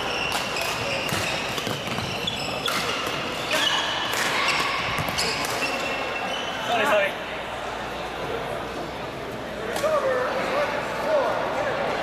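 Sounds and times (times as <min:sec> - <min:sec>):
shoes squeaking on court floor: 0:00.0 - 0:07.0
echoing background chatter: 0:00.0 - 0:12.0
rackets striking shuttlecock: 0:00.2 - 0:05.9.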